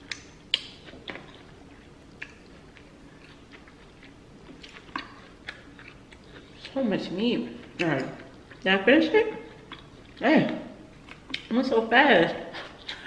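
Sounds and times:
wet mouth clicks and smacks: 0:00.0 - 0:01.4
close chewing of food: 0:00.0 - 0:08.7, 0:09.3 - 0:10.2, 0:10.9 - 0:11.6.

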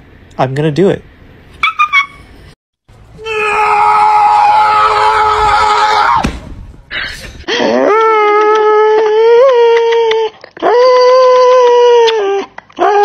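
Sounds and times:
small dog screaming cry: 0:03.2 - 0:06.2, 0:07.7 - 0:13.0.

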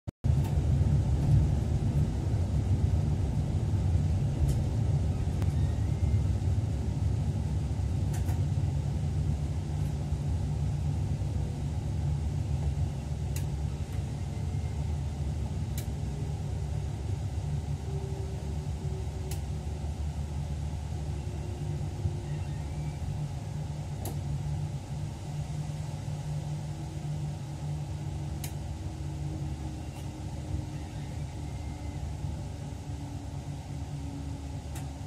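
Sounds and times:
electric train rumbling: 0:00.2 - 0:35.0
faint sharp clicks: 0:28.4 - 0:28.6.

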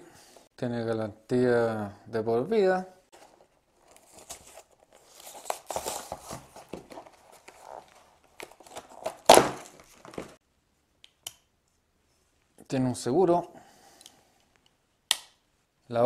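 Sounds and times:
packaging tearing and crinkling: 0:03.8 - 0:10.4.

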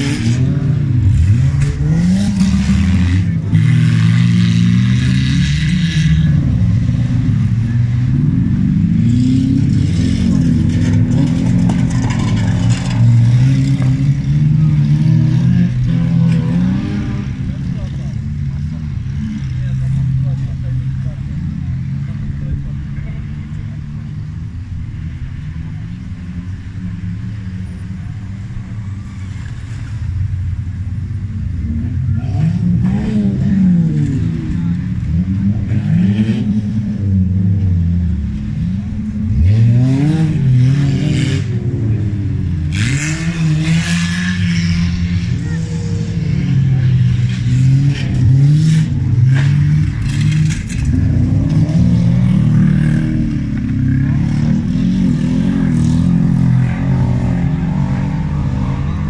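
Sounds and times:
race car engines revving: 0:00.0 - 0:59.0
clattering and scraping: 0:10.0 - 0:14.2, 0:49.4 - 0:52.0.

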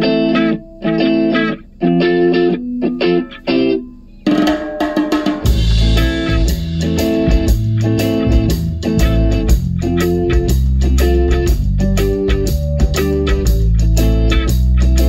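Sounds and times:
electric guitar chord stabs: 0:00.0 - 0:15.0
rock band with drums and bass: 0:04.2 - 0:15.0.

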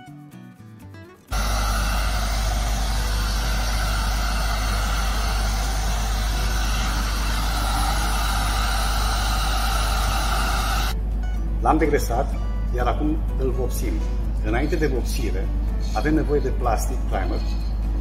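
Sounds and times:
heat gun blowing hot air: 0:01.3 - 0:11.0
low hum: 0:01.3 - 0:11.2.

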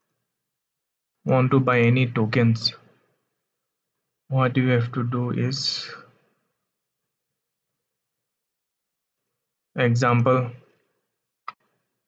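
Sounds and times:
man's voice: 0:01.3 - 0:02.9, 0:04.3 - 0:06.1, 0:09.8 - 0:10.6.

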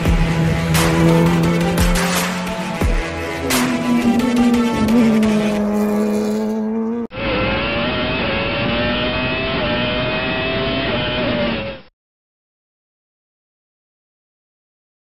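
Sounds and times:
racing car engine passing: 0:00.0 - 0:11.6.

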